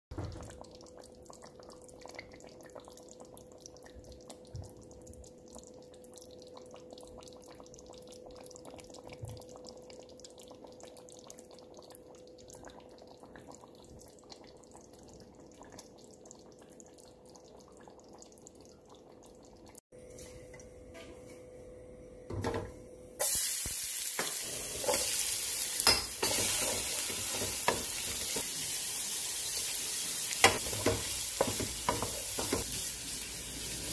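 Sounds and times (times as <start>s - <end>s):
onions sizzling in hot oil: 23.2s - 33.9s.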